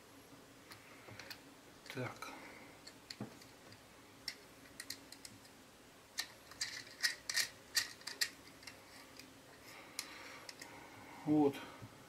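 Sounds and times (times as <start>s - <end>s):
hex key clicking and scraping: 6.2s - 9.2s.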